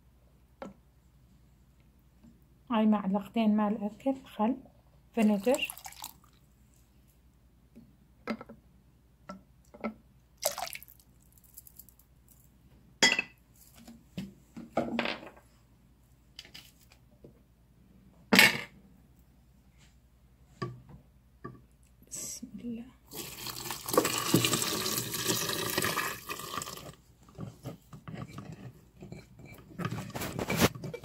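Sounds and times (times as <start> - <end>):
dishes and glassware clinking: 13.0 - 13.4.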